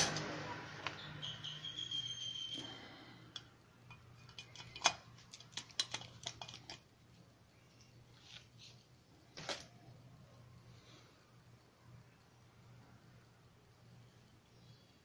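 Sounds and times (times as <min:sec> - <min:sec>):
faint high squeak: 0:00.3 - 0:03.2.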